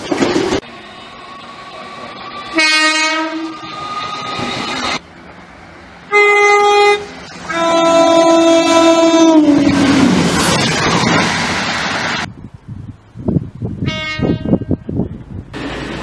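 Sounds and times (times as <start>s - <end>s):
train passing rumble: 0.0s - 16.0s
train horn blasts: 2.5s - 3.7s, 6.1s - 9.7s, 13.8s - 14.8s.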